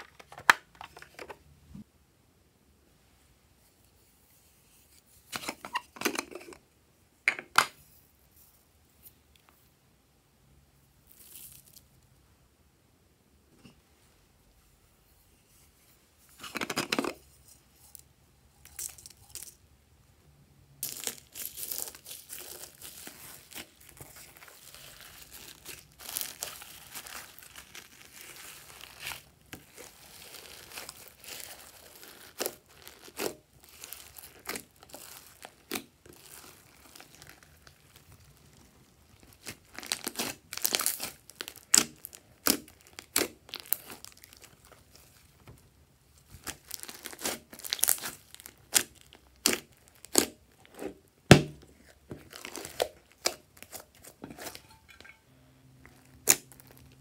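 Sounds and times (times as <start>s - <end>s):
slime squelching and crackling: 20.8s - 45.5s, 46.2s - 55.0s, 55.8s - 57.0s.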